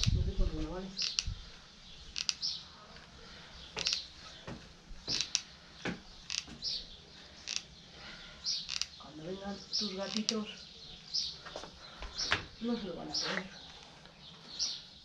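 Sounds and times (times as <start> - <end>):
glue gun trigger clicking and creaking: 1.0 - 1.4, 2.2 - 2.5, 3.8 - 4.0, 5.1 - 5.5, 6.3 - 6.5, 7.5 - 7.7, 8.7 - 9.0, 10.0 - 10.4.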